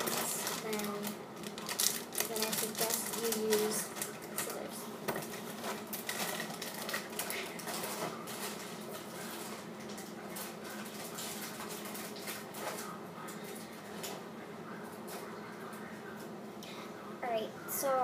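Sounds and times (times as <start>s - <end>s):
plastic bag crinkling: 0.0s - 13.7s
steady low hum: 0.0s - 18.0s.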